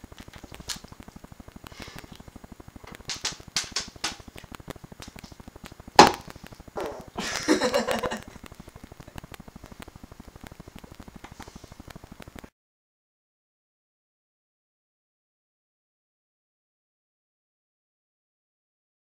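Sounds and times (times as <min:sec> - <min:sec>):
sharp knock: 0:06.0 - 0:06.2
person laughing: 0:07.1 - 0:08.4.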